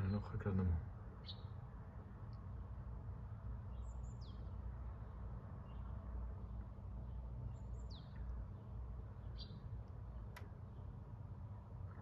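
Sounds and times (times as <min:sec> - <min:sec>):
songbird calling: 0:01.2 - 0:01.6, 0:07.0 - 0:11.0.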